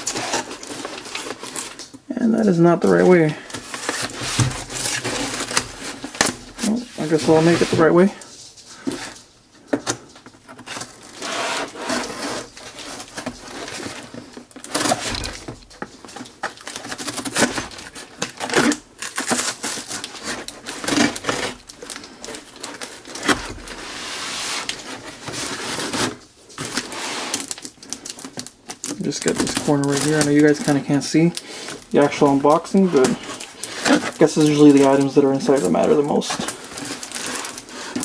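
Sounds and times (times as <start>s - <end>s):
cardboard tearing: 0.0s - 8.1s, 9.9s - 38.0s
knife scraping through cardboard: 10.7s - 14.0s, 23.1s - 27.5s.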